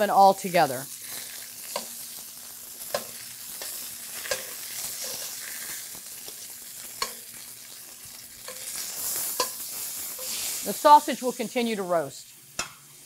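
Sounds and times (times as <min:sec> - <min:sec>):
food sizzling in a pan: 0:00.0 - 0:13.0
tongs clinking against pan: 0:01.7 - 0:02.0, 0:02.9 - 0:05.4, 0:06.2 - 0:07.3, 0:08.4 - 0:10.4.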